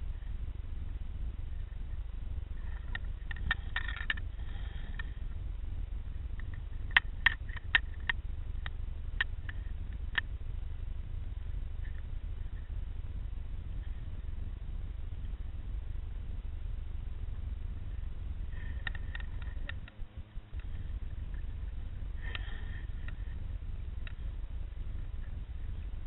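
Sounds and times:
low underwater rumble: 0:00.0 - 0:26.0
sharp underwater clicks: 0:02.6 - 0:05.1, 0:06.3 - 0:10.4.

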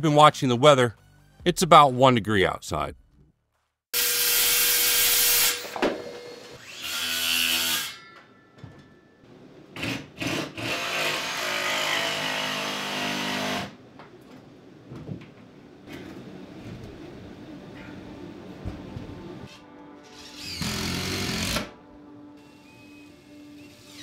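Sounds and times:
circular saw cutting wood board: 0:04.0 - 0:08.0
jigsaw cutting wood board: 0:09.8 - 0:13.8, 0:20.4 - 0:21.7.

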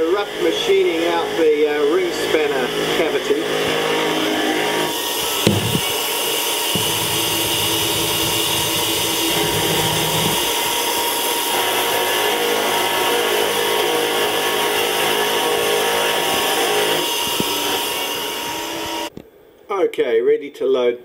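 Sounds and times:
milling spindle whine: 0:05.0 - 0:19.1
coolant spraying: 0:05.2 - 0:10.9.

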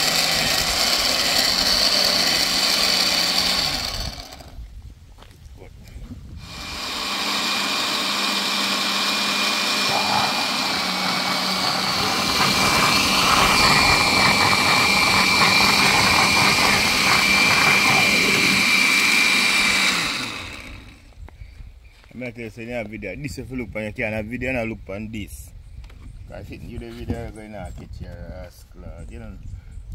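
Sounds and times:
electric blender running: 0:00.0 - 0:04.6, 0:06.4 - 0:21.1.

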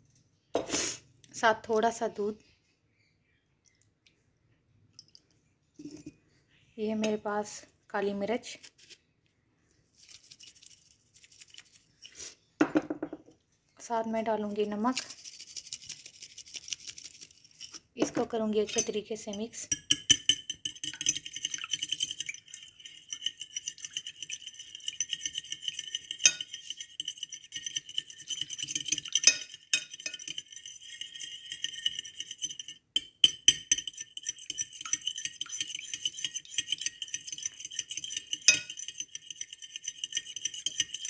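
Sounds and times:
fork beating eggs in glass dish: 0:14.4 - 0:41.0.

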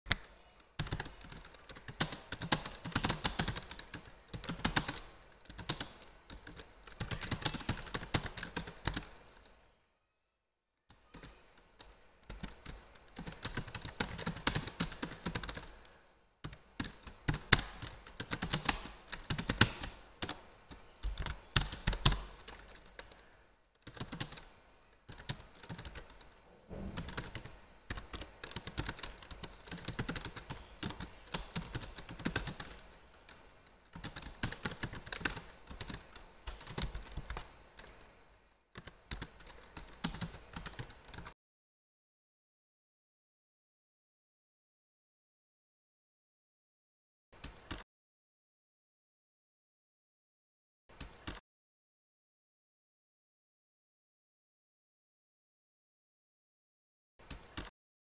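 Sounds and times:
typing on computer keyboard: 0:00.1 - 0:09.2, 0:10.9 - 0:24.5, 0:25.1 - 0:26.4, 0:27.0 - 0:38.1, 0:38.7 - 0:41.4, 0:47.4 - 0:47.8, 0:50.9 - 0:51.4, 0:57.2 - 0:57.7.

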